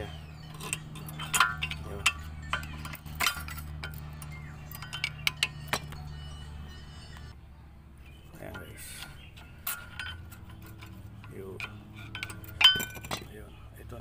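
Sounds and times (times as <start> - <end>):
steady low hum: 0.0 - 14.0
screwdriver scraping brake parts: 0.3 - 6.0.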